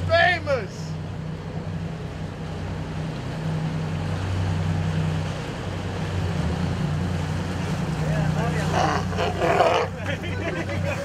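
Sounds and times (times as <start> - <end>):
boat engine humming: 0.0 - 11.0
water washing: 0.0 - 11.0
wind: 0.0 - 11.0.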